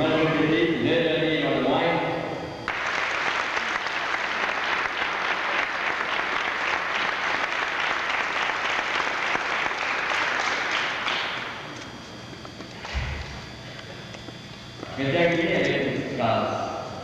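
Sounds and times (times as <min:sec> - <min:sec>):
audience applauding: 0:02.7 - 0:11.6.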